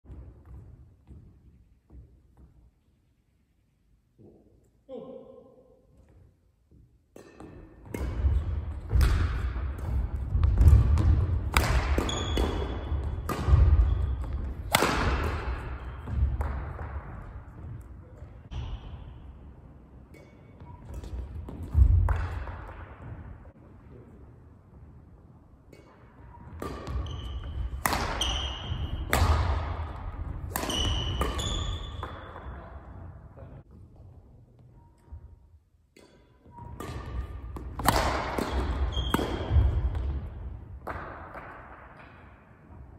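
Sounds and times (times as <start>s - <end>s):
rackets hitting shuttlecock: 7.1s - 23.5s, 25.6s - 33.0s, 35.8s - 42.9s
shoes squeaking on court: 12.0s - 14.7s, 20.2s - 21.8s, 26.1s - 29.1s, 30.1s - 32.6s, 36.4s - 37.4s, 38.5s - 40.1s.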